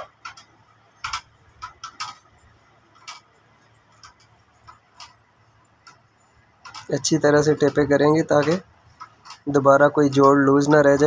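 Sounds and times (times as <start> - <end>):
wiring harness clicking and rustling: 0.0 - 11.0.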